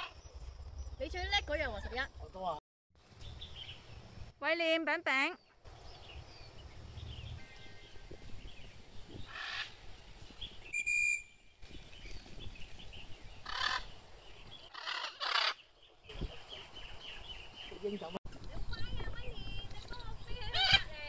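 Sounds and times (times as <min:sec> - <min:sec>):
small birds chirping: 0:00.0 - 0:04.2, 0:05.1 - 0:21.0
macaw squawking: 0:09.3 - 0:09.8, 0:13.5 - 0:13.9, 0:14.7 - 0:15.6, 0:20.4 - 0:21.0.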